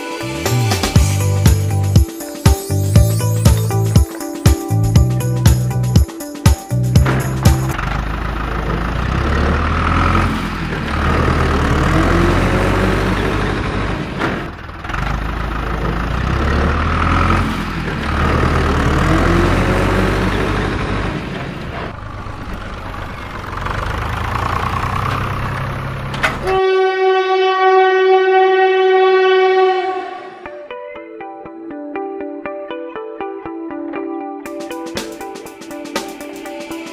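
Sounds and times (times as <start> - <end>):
low looping background music: 0.0 - 7.8
long horn-like toot: 26.4 - 30.6.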